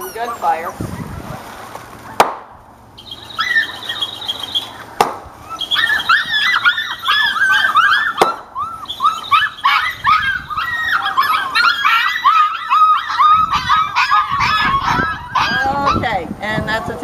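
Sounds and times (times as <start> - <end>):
puppies whining and yipping: 0.0 - 1.1, 3.0 - 16.2
sharp gunshot crack: 2.2 - 2.5, 5.0 - 5.2.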